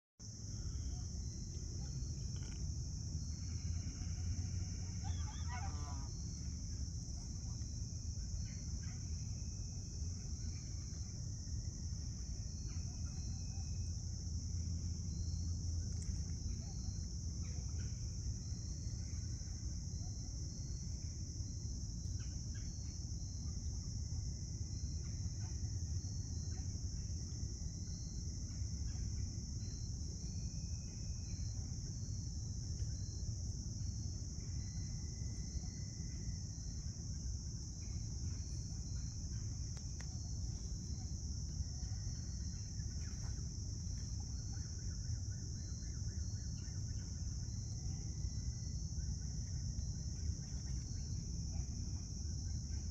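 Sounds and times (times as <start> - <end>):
insects trilling: 0.2 - 52.9.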